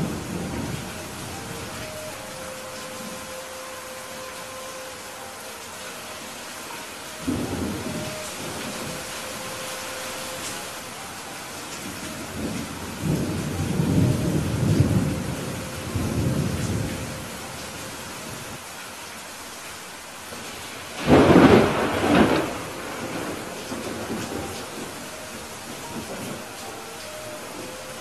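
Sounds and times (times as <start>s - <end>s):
rolling thunder rumble: 0.0s - 3.4s, 7.2s - 17.5s, 20.4s - 28.0s
steady rain: 0.0s - 28.0s
loud thunderclap: 21.0s - 24.8s.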